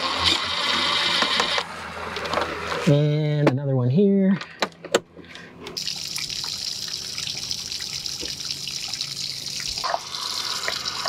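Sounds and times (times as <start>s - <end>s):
water running from hose: 5.8s - 11.0s.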